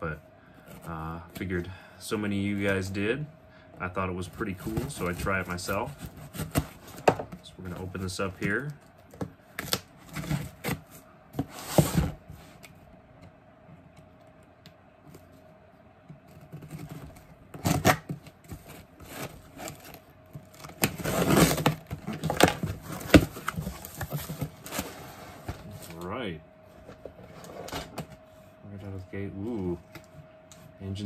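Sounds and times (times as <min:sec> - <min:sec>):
cardboard flaps scraped open: 0:16.4 - 0:25.8
box cutter slicing tape: 0:17.6 - 0:18.1.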